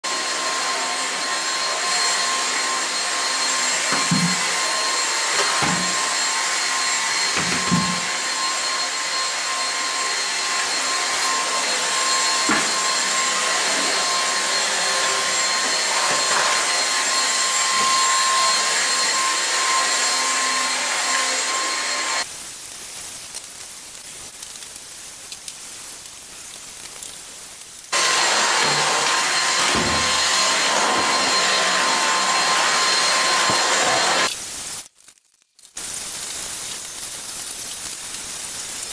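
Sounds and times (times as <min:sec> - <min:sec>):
vacuum cleaner motor whine: 0:00.1 - 0:22.3, 0:27.9 - 0:34.3.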